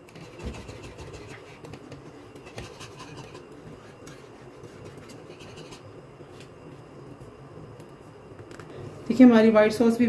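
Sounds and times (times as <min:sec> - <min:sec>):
whisk scraping a frying pan: 0:00.0 - 0:05.9.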